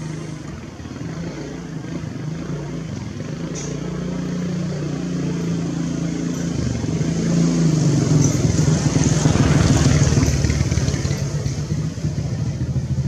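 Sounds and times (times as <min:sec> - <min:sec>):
vehicle engine running: 0:00.0 - 0:13.0.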